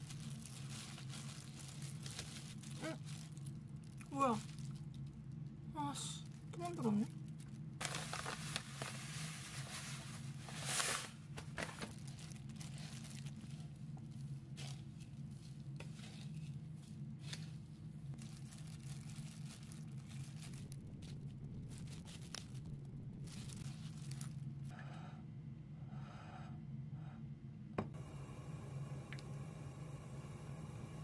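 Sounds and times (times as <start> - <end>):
plastic bag crinkling: 0.0 - 24.7.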